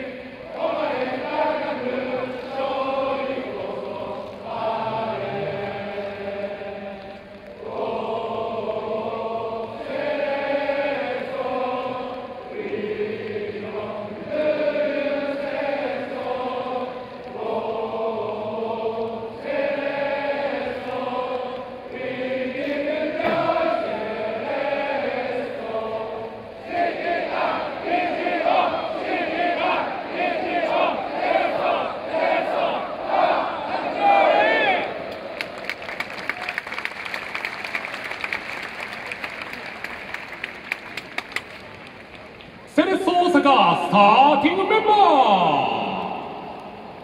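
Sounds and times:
football crowd singing a chant: 0.0s - 35.4s.

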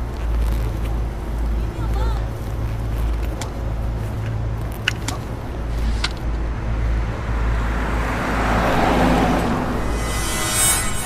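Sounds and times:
street traffic rumble: 0.0s - 11.0s
rush of noise: 5.5s - 11.0s.

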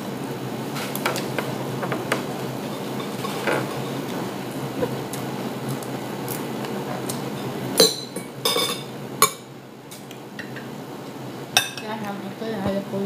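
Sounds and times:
steady background hum: 0.0s - 13.0s
cutlery clinking on a plate: 7.8s - 9.4s.

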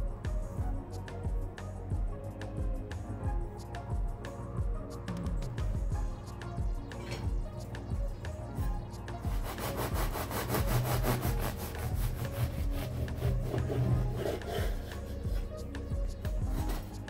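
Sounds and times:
knife sawing through bread crust: 9.4s - 15.5s.

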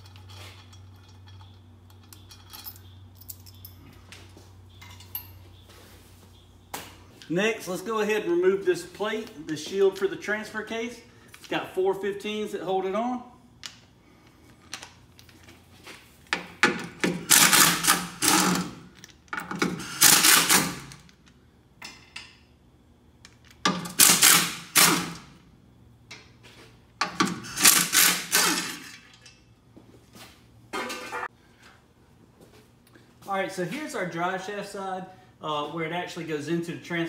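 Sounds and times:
cordless power tool spinning bolts: 17.0s - 18.8s, 19.5s - 21.0s, 23.7s - 25.3s, 27.0s - 28.9s.

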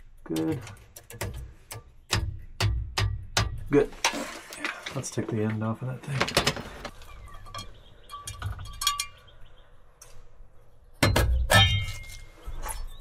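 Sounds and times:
knocks on metal: 1.1s - 3.7s
sheet metal clinks and clanks: 6.2s - 9.3s.

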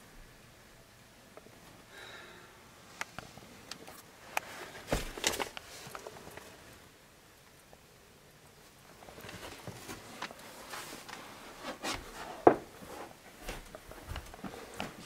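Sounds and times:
soft rustling: 8.6s - 15.0s.

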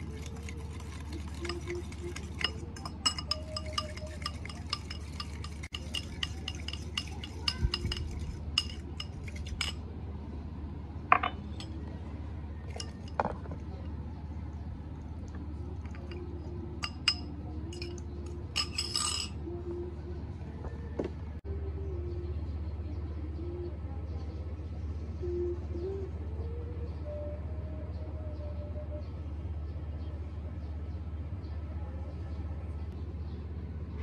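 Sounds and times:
fork clinking on ceramic bowl: 1.4s - 9.8s, 16.8s - 18.0s, 18.6s - 19.4s.

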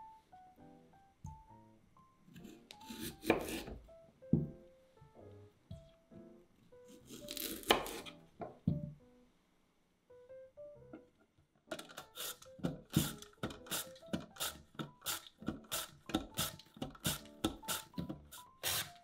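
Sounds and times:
soft background music: 0.0s - 19.0s
potato scraping on mandoline slicer: 2.4s - 3.8s, 7.1s - 8.1s, 11.8s - 19.0s.

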